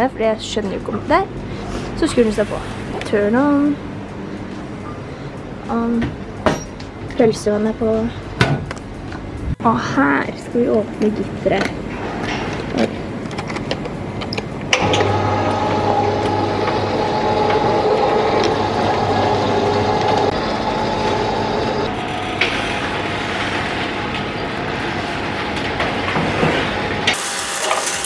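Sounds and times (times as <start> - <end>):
motor humming: 13.7 - 28.0
metal roller shutter rolling up: 14.8 - 28.0.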